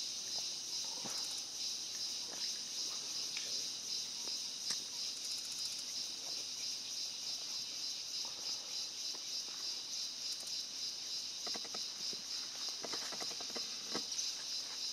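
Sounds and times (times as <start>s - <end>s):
high-pitched insect chorus: 0.0s - 14.9s.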